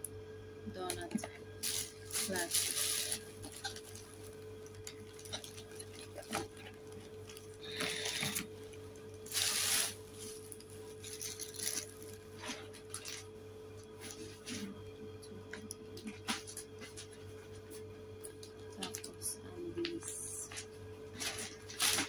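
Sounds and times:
faint hum: 0.0s - 22.0s
plastic bag rustling: 1.0s - 14.7s, 20.0s - 22.0s.

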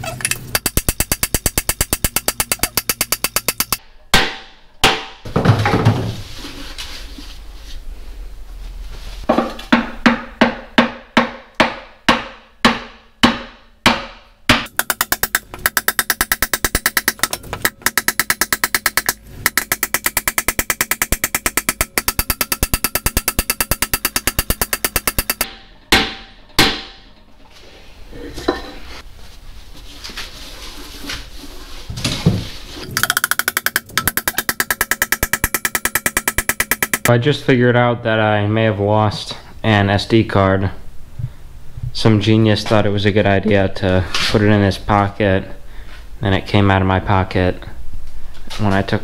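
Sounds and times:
hammer tapping metal sleeve: 0.0s - 3.8s, 14.5s - 26.7s, 32.9s - 37.1s.

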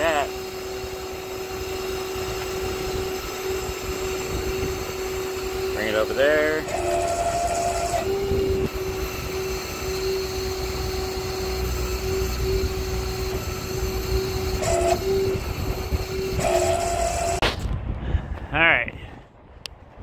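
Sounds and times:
higher machine tone: 0.0s - 17.5s
crane whine over low rumble: 0.0s - 18.5s.

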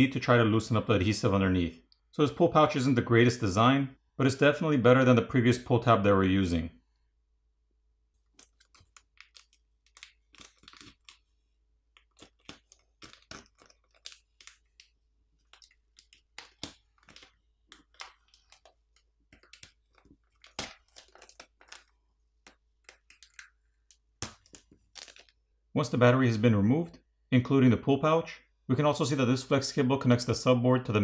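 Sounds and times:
plastic pouch crackling and crinkling: 8.2s - 25.5s.

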